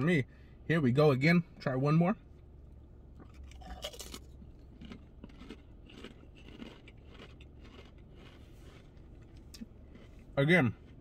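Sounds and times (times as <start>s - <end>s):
person chewing chips: 3.2s - 11.0s.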